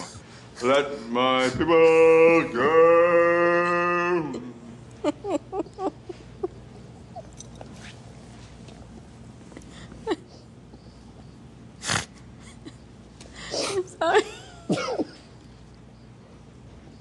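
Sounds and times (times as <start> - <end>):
stifled breathy chuckles: 5.0 - 7.5.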